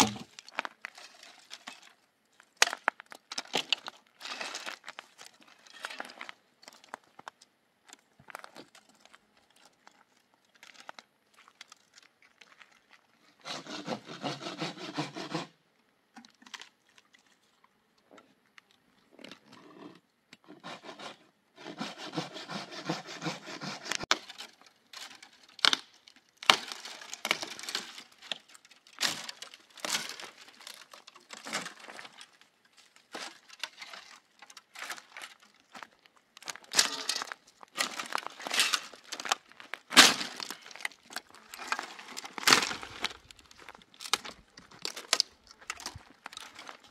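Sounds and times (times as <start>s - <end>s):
wood cracking: 0.0s - 13.8s, 23.5s - 46.9s
sawing wood: 13.4s - 15.6s, 20.5s - 24.2s.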